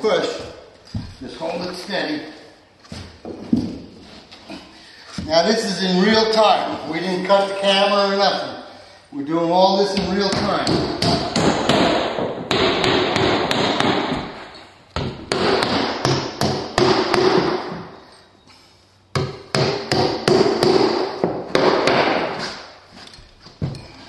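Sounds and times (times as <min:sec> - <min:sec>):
hammer driving nails into drywall: 0:10.0 - 0:14.4, 0:15.0 - 0:17.8, 0:19.2 - 0:22.6.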